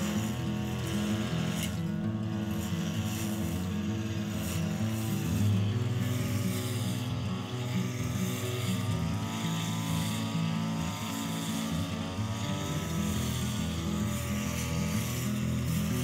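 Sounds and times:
brush cutter engine running: 0.0s - 16.0s.

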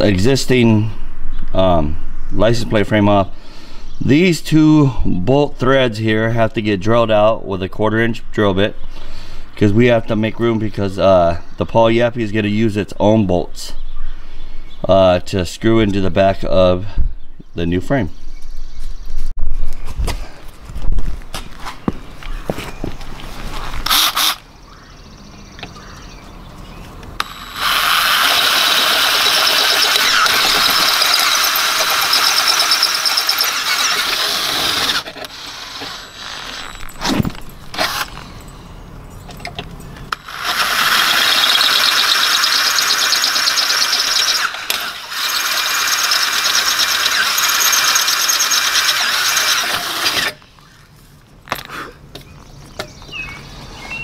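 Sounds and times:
cordless drill squealing: 23.8s - 24.4s, 27.2s - 37.1s, 40.1s - 50.4s.

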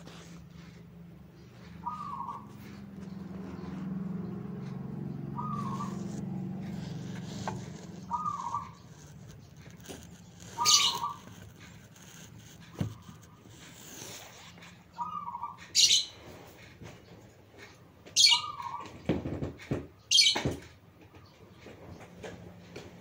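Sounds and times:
dove cooing: 1.6s - 8.9s, 10.5s - 11.4s, 15.0s - 15.9s.

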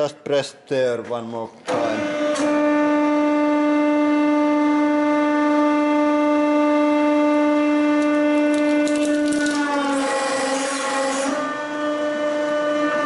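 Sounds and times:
hydraulic press humming: 1.6s - 13.0s.

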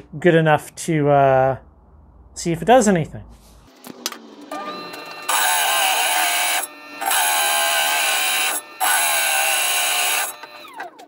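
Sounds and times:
saw blade grinding stone: 4.5s - 10.7s.

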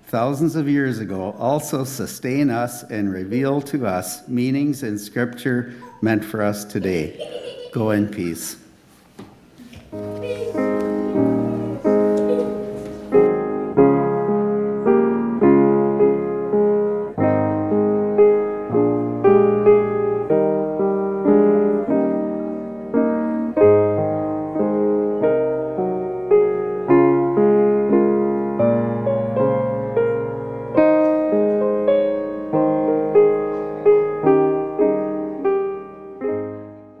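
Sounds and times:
piano playing slow hymn: 9.6s - 37.0s.

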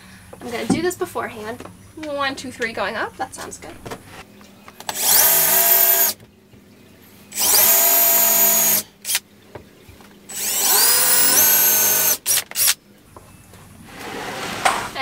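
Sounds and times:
cordless drill whining: 4.9s - 6.2s, 7.3s - 9.2s, 10.3s - 12.8s.

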